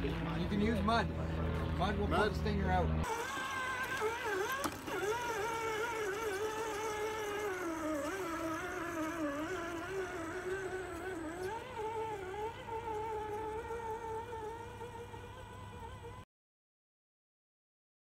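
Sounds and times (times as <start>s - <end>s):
toy truck electric motor whining: 3.0s - 16.2s.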